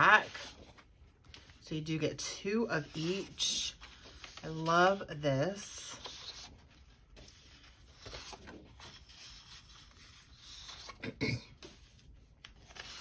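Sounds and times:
paper rubbing and rustling: 2.8 - 11.0, 11.6 - 13.0.

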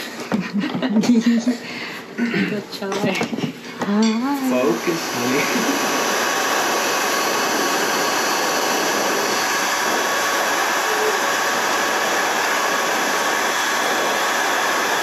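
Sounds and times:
heat gun blowing hot air: 4.3 - 15.0.

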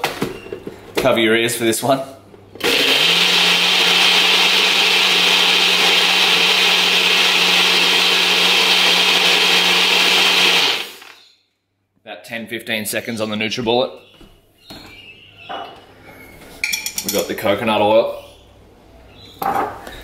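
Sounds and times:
blender whirring: 2.6 - 11.2.

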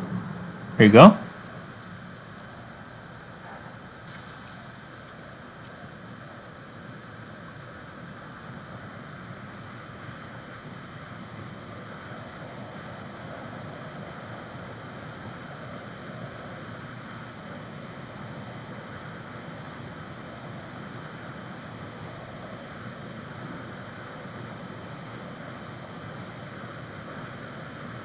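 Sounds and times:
room noise hiss: 0.0 - 28.0.

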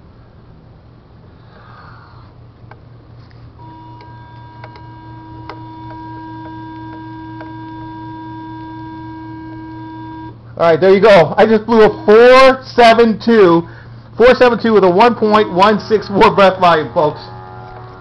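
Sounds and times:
low steady hum: 0.0 - 18.0
breath tester steady tone: 3.5 - 10.6, 11.4 - 14.2.

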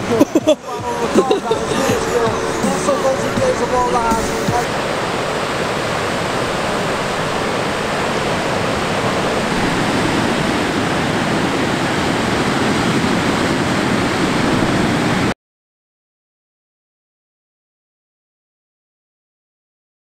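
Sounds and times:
ocean waves breaking: 0.0 - 15.3.

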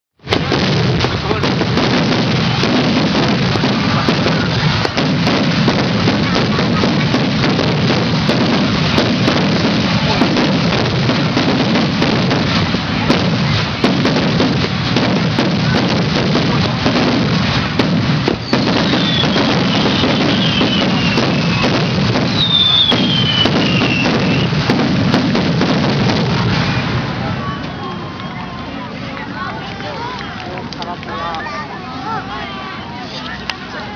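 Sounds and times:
fireworks crackling and popping: 0.2 - 33.9
falling firework whistles: 11.1 - 28.5.

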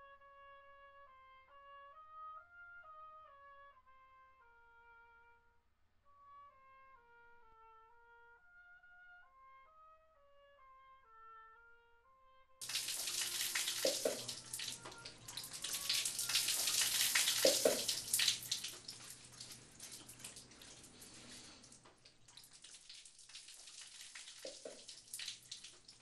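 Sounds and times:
soft slow instrumental melody: 0.0 - 5.6
shower water spraying: 12.6 - 26.0.

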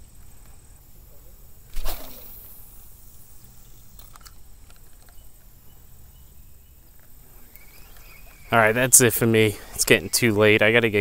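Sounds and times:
faint insect hum: 0.0 - 11.0
faint clicks: 6.9 - 8.5.

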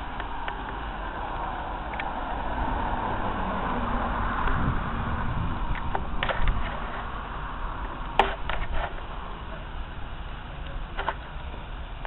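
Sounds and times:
low train rumble: 0.0 - 12.0
train wheels clicking over rail joints: 5.7 - 7.1, 8.1 - 9.6, 10.5 - 12.0.

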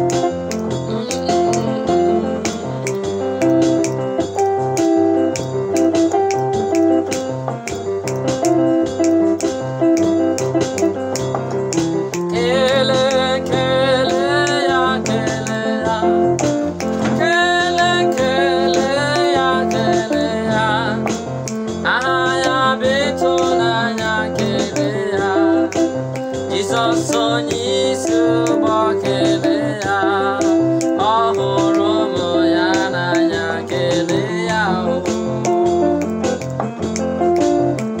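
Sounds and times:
instrumental accompaniment: 0.0 - 38.0
man singing: 0.9 - 3.6, 12.2 - 35.9.

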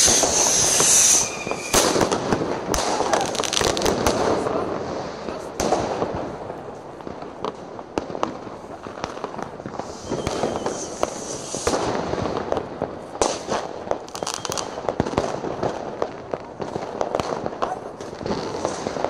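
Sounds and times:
fireworks hissing: 0.0 - 5.5, 8.4 - 15.4
firework bangs and pops: 0.0 - 19.0
fireworks crackle and rumble: 0.0 - 19.0.

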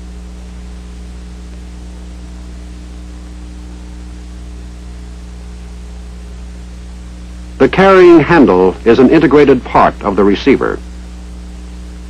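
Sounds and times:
electrical hum with hiss: 0.0 - 12.0.

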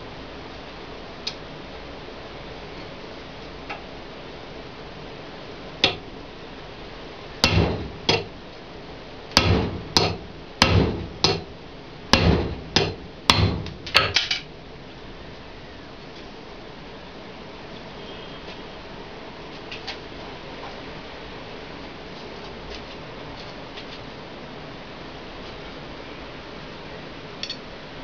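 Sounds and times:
hammer striking metal: 5.8 - 6.1, 7.4 - 8.3, 9.4 - 11.5, 12.1 - 14.4.

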